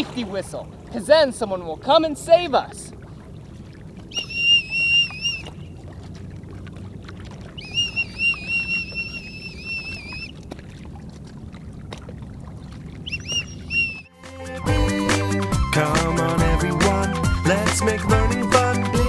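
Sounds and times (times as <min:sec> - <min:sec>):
warbling whistle blasts: 0:04.1 - 0:05.7, 0:07.6 - 0:10.4, 0:13.0 - 0:14.1.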